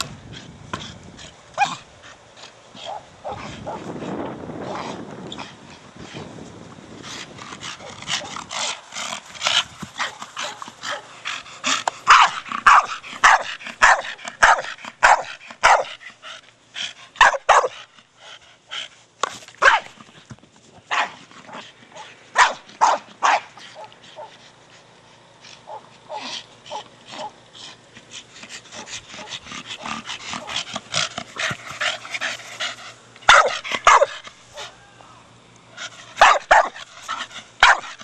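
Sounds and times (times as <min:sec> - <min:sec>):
dog barking: 0:12.1 - 0:15.9, 0:17.2 - 0:17.8, 0:19.6 - 0:19.9, 0:20.9 - 0:21.2, 0:22.0 - 0:24.3, 0:33.3 - 0:34.7, 0:36.2 - 0:36.8, 0:37.6 - 0:38.0.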